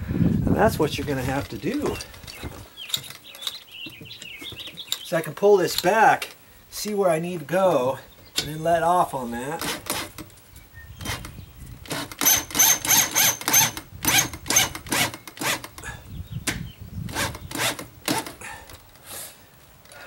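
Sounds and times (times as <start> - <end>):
power drill driving a screw: 9.6 - 10.2, 11.9 - 15.7.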